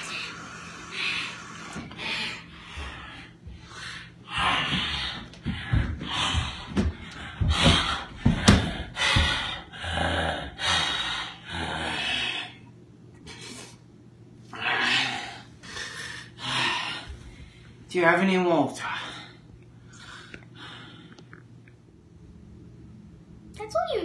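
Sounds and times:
person panting and gasping: 0:00.0 - 0:12.6, 0:14.6 - 0:17.8.

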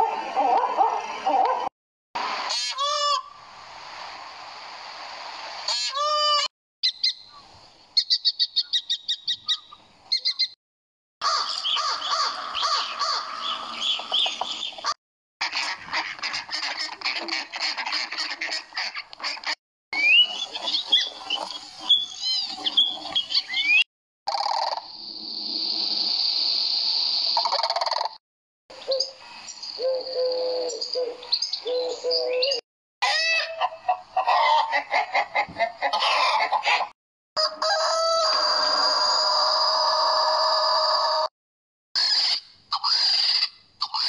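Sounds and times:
bird calls: 0:06.8 - 0:10.6, 0:11.2 - 0:15.0, 0:20.0 - 0:24.8, 0:27.4 - 0:32.6
duck quacking: 0:15.4 - 0:19.6
doves cooing: 0:29.8 - 0:32.6
rooster crowing: 0:37.4 - 0:41.3.

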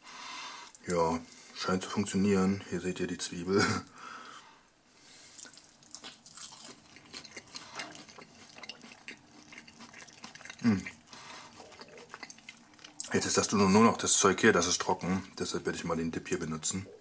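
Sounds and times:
breading crackling as torn: 0:05.4 - 0:11.0
person humming: 0:10.6 - 0:10.8.

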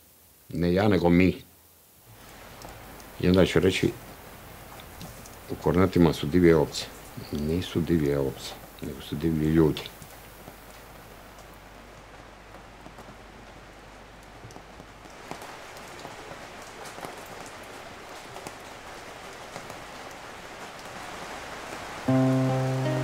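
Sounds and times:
rain-like patter: 0:00.0 - 0:23.0
music with low notes: 0:22.1 - 0:23.0.

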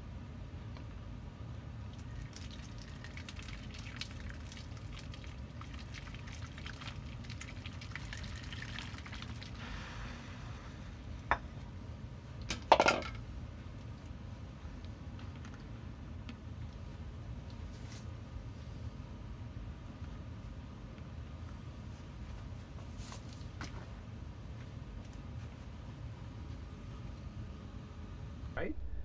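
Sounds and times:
hot water trickling: 0:01.9 - 0:10.3
faint crackling fizz: 0:01.9 - 0:11.3.

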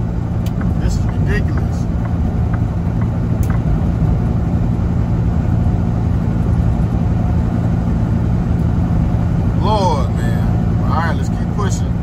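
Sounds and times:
diesel engine drone: 0:00.0 - 0:12.0.

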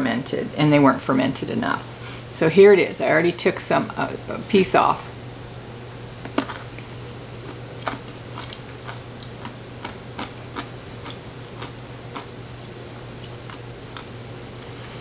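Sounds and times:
crunchy pickle chewing: 0:06.3 - 0:14.1.

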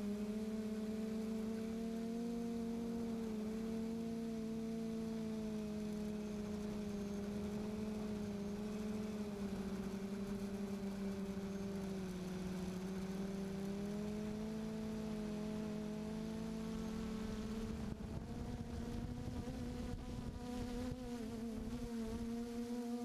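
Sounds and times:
drone propellers humming: 0:00.0 - 0:23.0.

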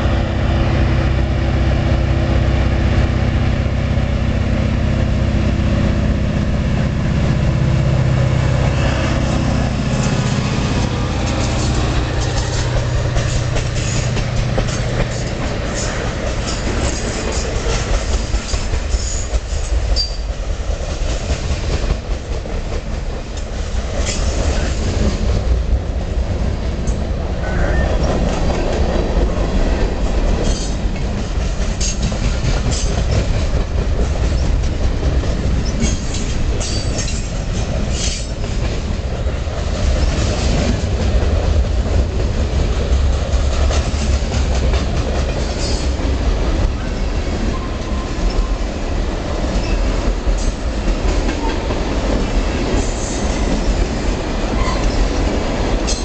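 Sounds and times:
freight train rumble: 0:00.0 - 0:56.0
wheels clacking over rail joints: 0:08.6 - 0:25.8, 0:26.8 - 0:56.0.

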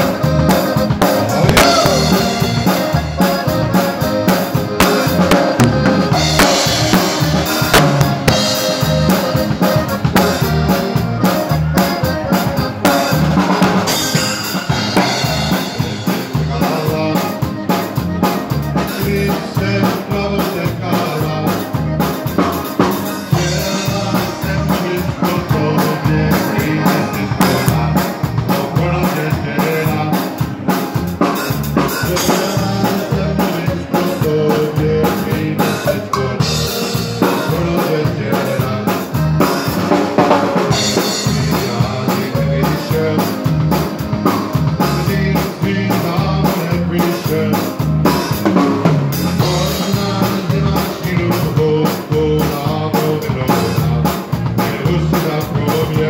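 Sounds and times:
bass drum: 0:00.0 - 0:56.0
dance band playing: 0:00.0 - 0:56.0
snare drum: 0:00.6 - 0:10.6.

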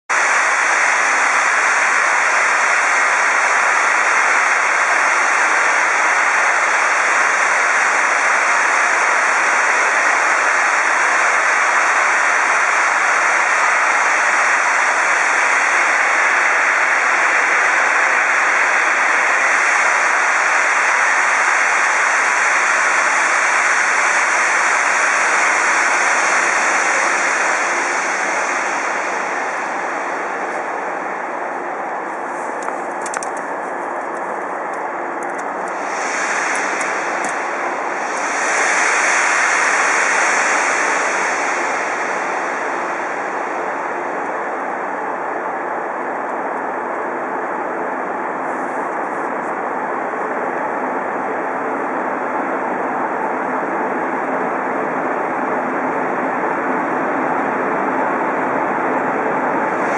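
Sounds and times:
steam locomotive venting steam: 0:00.1 - 0:33.8, 0:35.3 - 0:44.9, 0:59.4 - 0:59.9.

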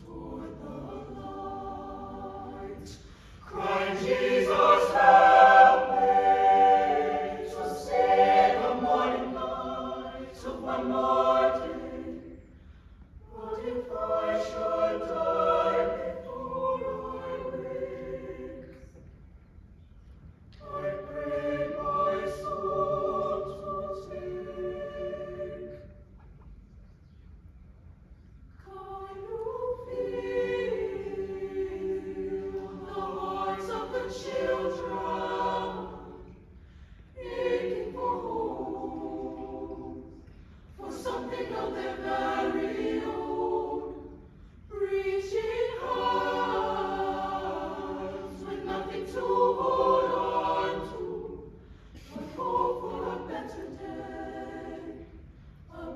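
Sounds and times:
choir singing unaccompanied: 0:00.0 - 0:12.6, 0:13.2 - 0:19.2, 0:20.6 - 0:26.0, 0:28.6 - 0:55.9.

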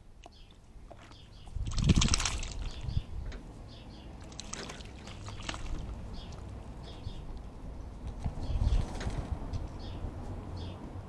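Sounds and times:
bird splashing in water: 0:00.2 - 0:03.0, 0:04.1 - 0:06.8.

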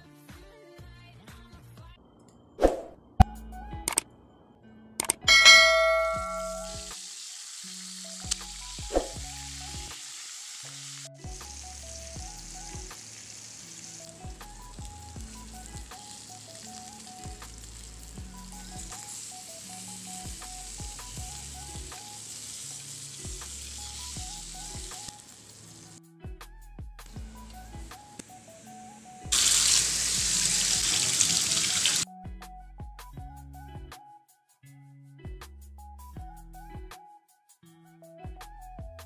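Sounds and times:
quiet background music: 0:00.0 - 0:39.0
sharp clicks: 0:05.0 - 0:05.3
fish sizzling in hot oil: 0:05.4 - 0:26.0, 0:27.4 - 0:32.0.

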